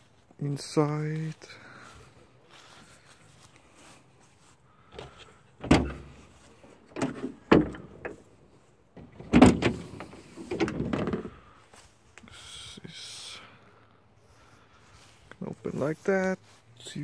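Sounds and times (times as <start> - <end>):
van doors clunking open: 4.9 - 11.5.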